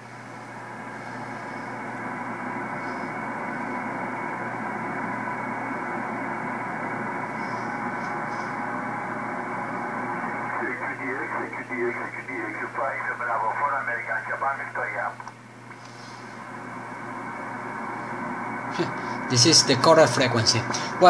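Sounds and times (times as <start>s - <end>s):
radio receiver hiss: 6.6s - 19.5s.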